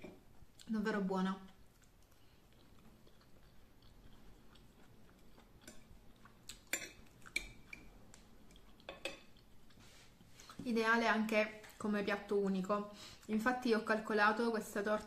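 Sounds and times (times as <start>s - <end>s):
person chewing pastry: 1.4s - 10.6s.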